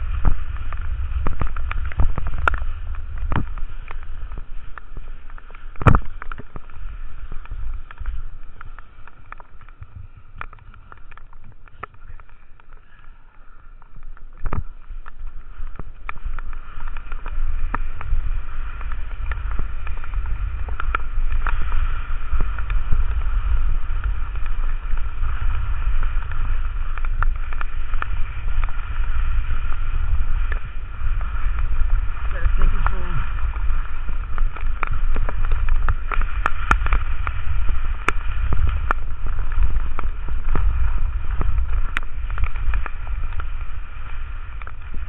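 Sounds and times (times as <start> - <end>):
skis hissing on wet snow: 0.0 - 45.0
wind buffeting microphone: 0.0 - 45.0.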